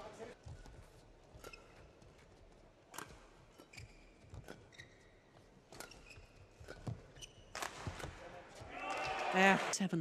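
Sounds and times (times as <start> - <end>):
court shoes squeaking: 0.4 - 9.2
rackets striking shuttlecock: 5.7 - 8.2.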